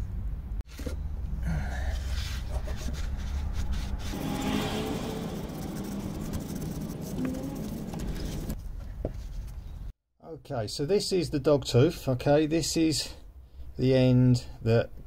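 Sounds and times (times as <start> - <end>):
tissue rubbing inside metal bore: 2.0 - 8.6.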